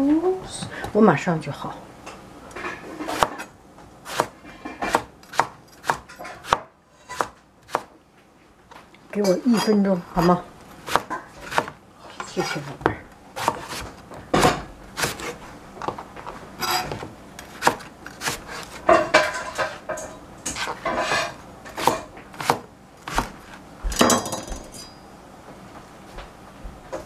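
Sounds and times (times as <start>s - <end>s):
knife and board clatter: 4.1s - 7.3s, 16.6s - 25.0s.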